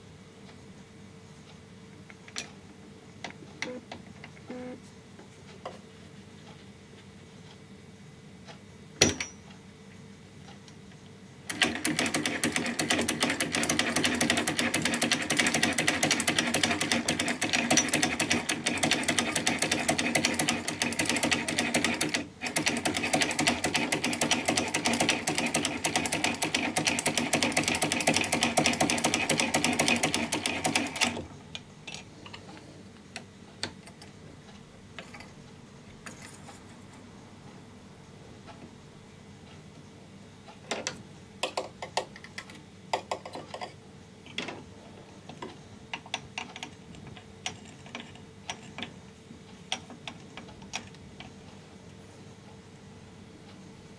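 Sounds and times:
hand-cranked sewing machine clattering: 0:11.5 - 0:31.2.

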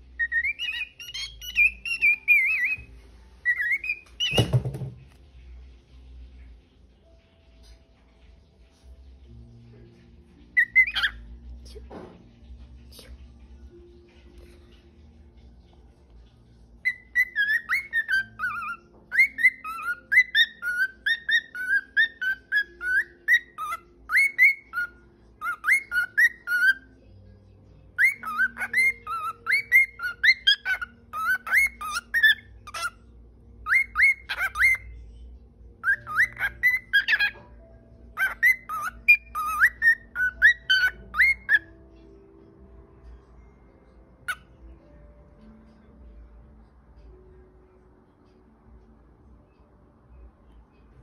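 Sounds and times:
cockatiel whistling: 0:00.2 - 0:04.7, 0:10.6 - 0:11.2, 0:16.8 - 0:26.9, 0:28.0 - 0:33.0, 0:33.6 - 0:35.0, 0:35.8 - 0:37.5, 0:38.2 - 0:41.7.

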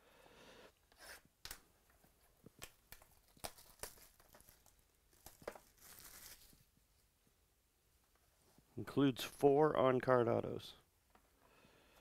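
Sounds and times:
small clicks and rustles: 0:01.4 - 0:06.7
wrapping tearing and crinkling: 0:02.6 - 0:06.7.

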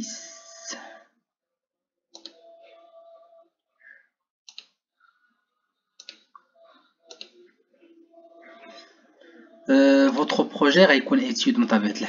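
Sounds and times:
computer mouse clicks: 0:02.1 - 0:02.4, 0:04.5 - 0:04.8, 0:06.0 - 0:06.3, 0:07.1 - 0:07.3
faint low voice: 0:06.6 - 0:10.5.

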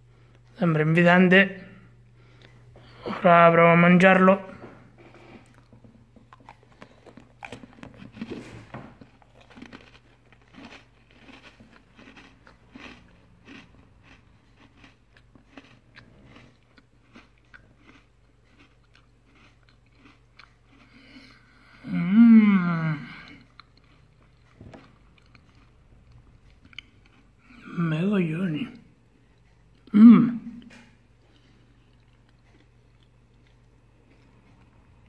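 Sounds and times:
biscuit crunching: 0:05.0 - 0:21.4, 0:23.0 - 0:27.7.

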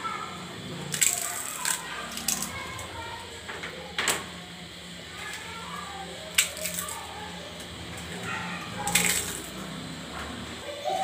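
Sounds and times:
faint voices: 0:00.0 - 0:11.0
crisp pieces crumbled into bowls: 0:00.8 - 0:02.9, 0:06.3 - 0:07.1, 0:08.0 - 0:09.6.

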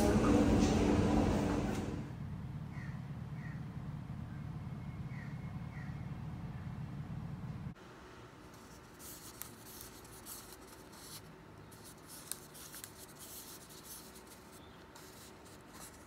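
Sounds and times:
paper cup lid rubbing and scraping: 0:08.5 - 0:16.0.

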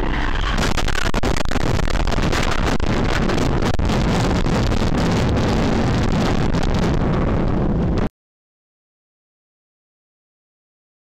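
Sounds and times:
road and wind noise in car: 0:00.0 - 0:08.1.

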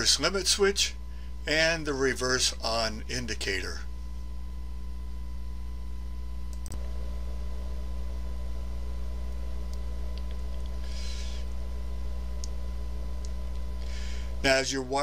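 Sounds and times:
low electrical hum: 0:00.0 - 0:15.0
faint clicks: 0:06.5 - 0:06.9.

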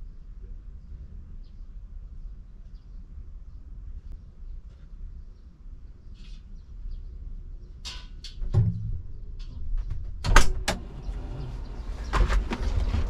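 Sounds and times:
low steady rumble: 0:00.0 - 0:13.0
cab door clicks and knocks: 0:09.8 - 0:10.8.

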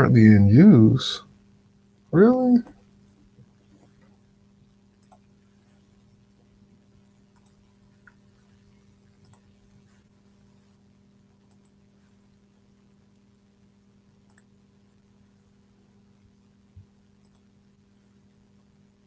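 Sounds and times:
low electrical hum: 0:00.0 - 0:19.0
computer mouse clicks: 0:05.0 - 0:05.4, 0:07.3 - 0:08.2, 0:09.2 - 0:09.5, 0:11.4 - 0:11.8, 0:14.3 - 0:14.6, 0:17.2 - 0:17.5.

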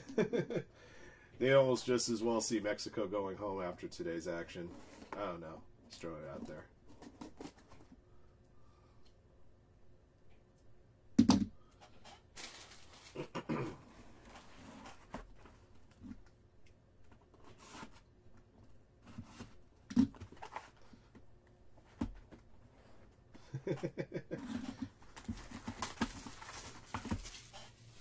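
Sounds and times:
foil wrapper crinkling and tearing: 0:12.3 - 0:13.3.

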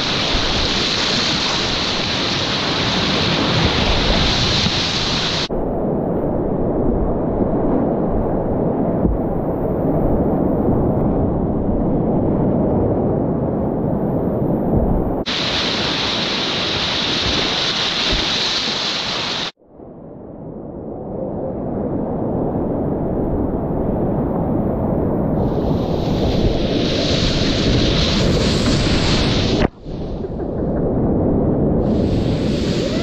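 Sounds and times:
whitewater rapids rushing: 0:15.3 - 0:19.5.

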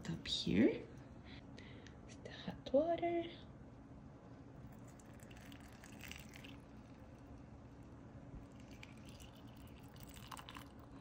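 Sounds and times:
hot water pouring into mug: 0:04.7 - 0:07.3, 0:08.5 - 0:10.9.

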